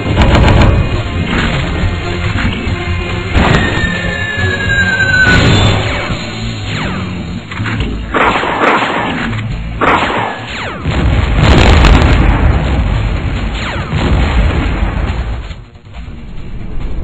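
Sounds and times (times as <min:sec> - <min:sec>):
cartoon explosion booms: 0:10.8 - 0:15.4
low rumble: 0:10.8 - 0:17.0.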